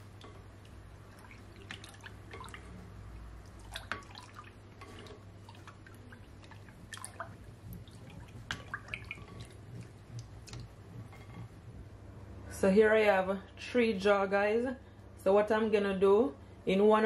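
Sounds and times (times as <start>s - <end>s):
liquid dripping: 0.0s - 11.6s
spoon stirring liquid: 0.0s - 12.0s.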